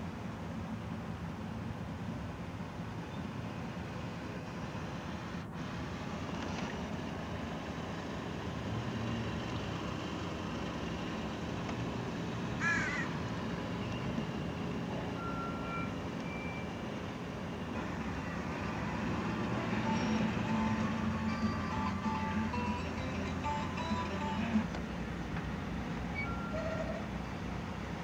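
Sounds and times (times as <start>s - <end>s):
car engine and road noise: 0.0s - 28.0s
crow cawing: 12.6s - 13.1s.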